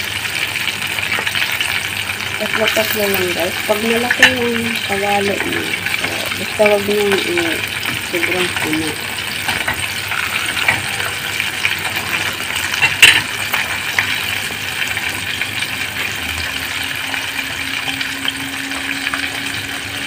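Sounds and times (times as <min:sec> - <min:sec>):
chicken deep-frying in oil: 0:00.0 - 0:20.0
tongs clinking on plate: 0:12.8 - 0:13.3.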